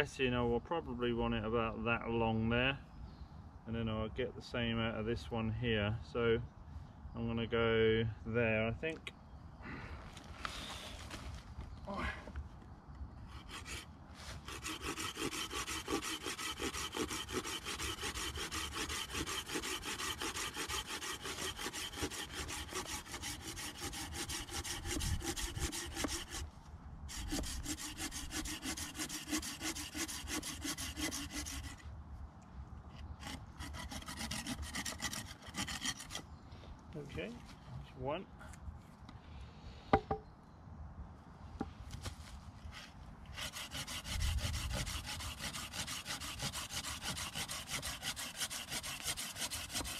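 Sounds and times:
hand saw cutting wood: 13.3s - 26.5s, 27.1s - 31.8s, 33.0s - 36.2s, 42.7s - 49.9s.

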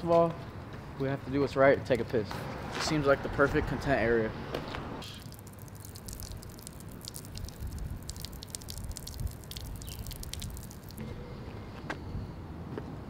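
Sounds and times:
urine stream splashing on wall: 5.0s - 11.0s.

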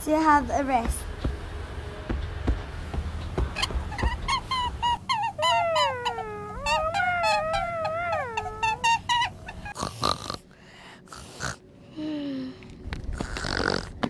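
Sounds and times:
cat-like animal yowls and howl: 4.8s - 9.8s.

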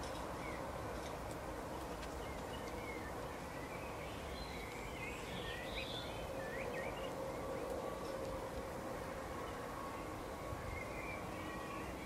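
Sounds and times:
small songbirds twittering: 0.0s - 1.1s, 1.7s - 12.0s.

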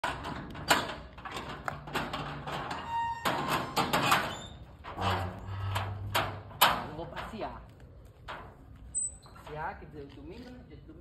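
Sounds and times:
metal gate rattling and clanking: 0.0s - 9.9s
gate squeak: 2.0s - 6.5s, 8.9s - 9.6s.

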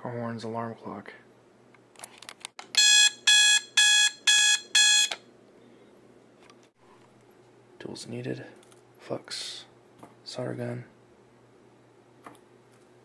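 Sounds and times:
alarm clock beeps: 2.8s - 5.2s.

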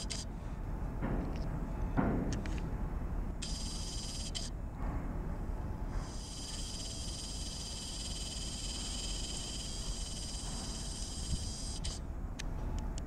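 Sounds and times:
insects calling with pulsing trill: 3.4s - 4.5s, 6.1s - 12.0s.

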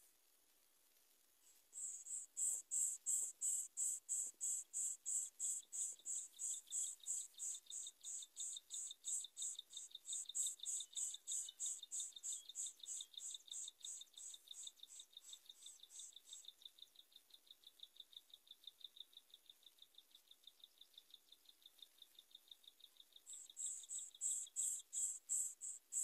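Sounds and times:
lower faster insect trill: 1.5s - 16.8s, 23.2s - 26.0s
high-pitched insect chirp: 1.5s - 26.0s.

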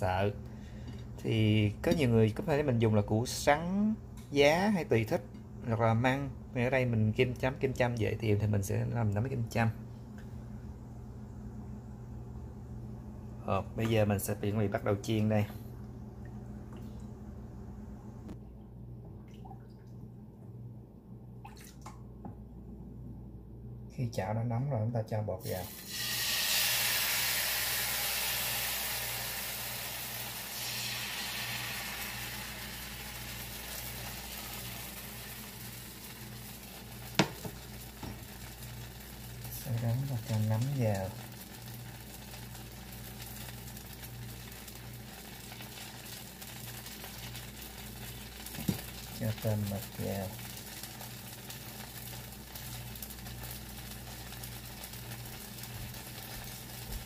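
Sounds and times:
batter sizzling in a skillet: 25.4s - 57.0s
sharp tap: 37.2s - 38.2s.

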